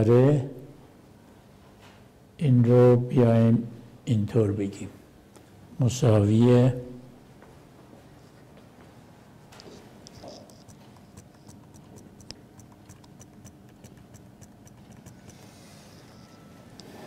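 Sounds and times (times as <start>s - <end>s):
faint room hum: 0.0s - 17.0s
mouse scroll wheel ticking: 10.1s - 16.4s.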